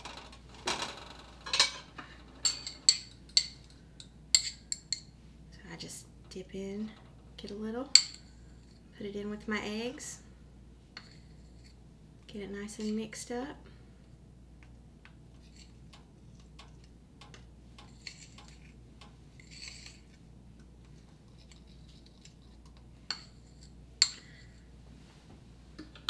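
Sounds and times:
fork beating eggs in a cup: 0:15.1 - 0:24.6.

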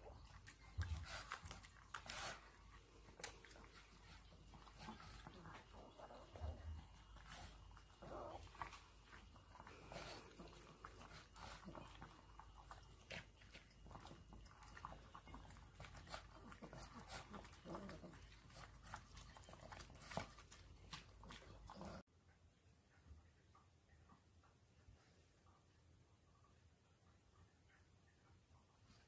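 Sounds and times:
dogs chewing and lapping: 0:00.0 - 0:22.1.

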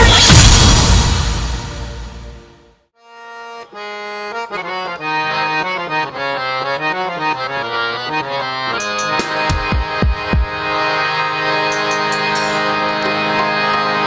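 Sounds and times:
accordion-like melody: 0:03.0 - 0:14.0.

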